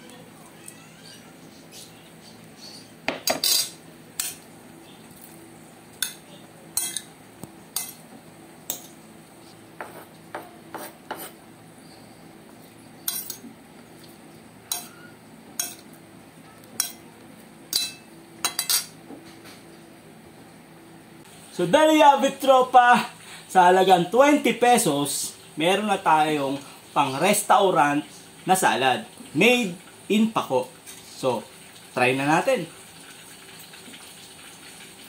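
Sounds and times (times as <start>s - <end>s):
metal utensils clinking on plate: 3.2s - 4.4s, 13.1s - 13.5s, 14.7s - 15.0s, 17.7s - 19.0s.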